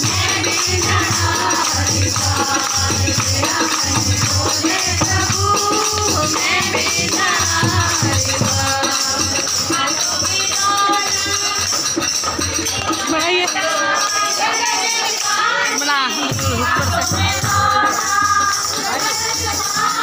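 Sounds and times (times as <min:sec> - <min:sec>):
hand clapping: 0:00.0 - 0:15.4
rattling jingling percussion: 0:00.0 - 0:20.0
steady drum beat: 0:00.0 - 0:20.0
women singing together: 0:00.0 - 0:20.0.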